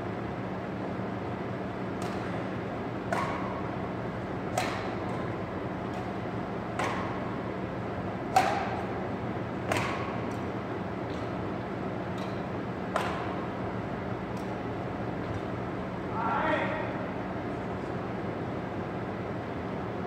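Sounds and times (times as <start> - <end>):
steady low hum: 0.0 - 20.0
racquets hitting shuttlecock: 1.9 - 3.8, 4.4 - 7.5, 8.2 - 13.6.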